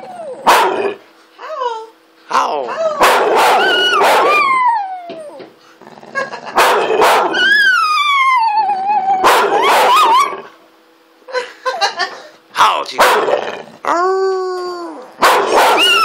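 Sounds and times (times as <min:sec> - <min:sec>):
dog howling: 0:00.0 - 0:01.0, 0:02.8 - 0:05.6, 0:07.0 - 0:10.5, 0:13.2 - 0:16.0
dog barking and yipping: 0:00.4 - 0:00.9, 0:03.0 - 0:04.6, 0:06.6 - 0:07.8, 0:09.2 - 0:10.4, 0:13.0 - 0:13.3, 0:15.2 - 0:16.0.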